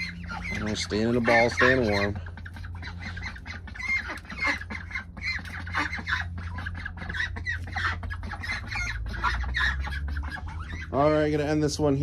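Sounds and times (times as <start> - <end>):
ducks calling: 0.0 - 12.0
steady low hum: 0.0 - 12.0.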